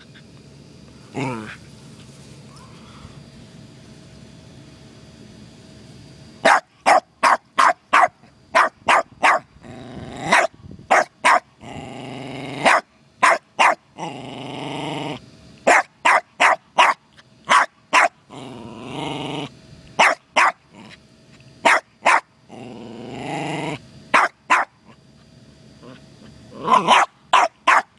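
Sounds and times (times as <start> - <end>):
dog drawn-out vocal sounds: 1.1 - 1.6, 25.8 - 27.9
dog barking: 6.4 - 9.5, 10.3 - 11.5, 12.6 - 13.8, 15.7 - 18.2, 20.0 - 20.6, 21.6 - 22.3, 24.1 - 24.8, 26.6 - 27.9.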